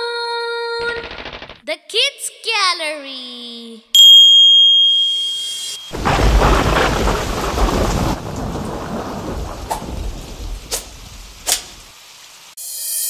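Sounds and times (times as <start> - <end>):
sharp clicks: 0.8 - 1.6, 11.5 - 11.7
bright chime tone: 4.0 - 6.0
thunder rumble: 5.9 - 11.9
steady rain: 5.9 - 12.6.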